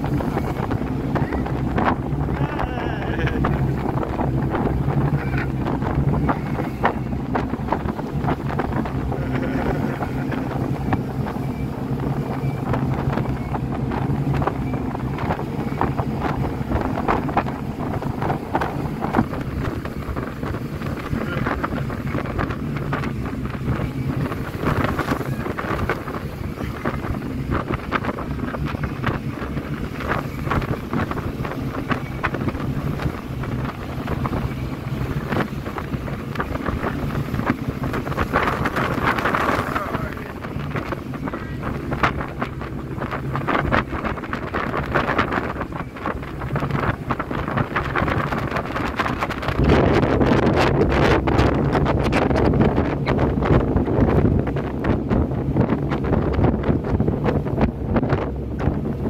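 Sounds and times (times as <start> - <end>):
speedboat engine running: 0.0 - 59.0
wind buffeting microphone: 0.0 - 59.0.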